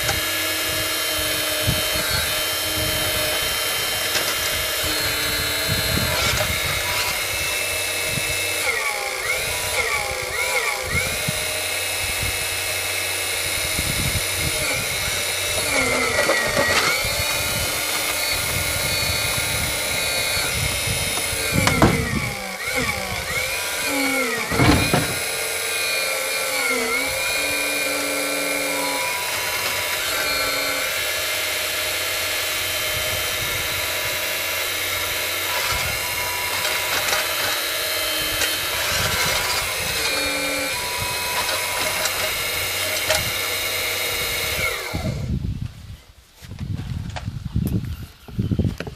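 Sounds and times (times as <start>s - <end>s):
hydraulic pump whining: 0.0s - 46.0s
bucket scraping soil: 14.5s - 30.8s.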